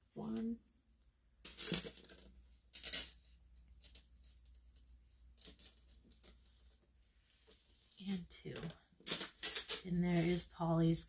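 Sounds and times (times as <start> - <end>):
small metal chain clinking: 1.5 - 3.2, 3.8 - 6.8, 7.6 - 10.4.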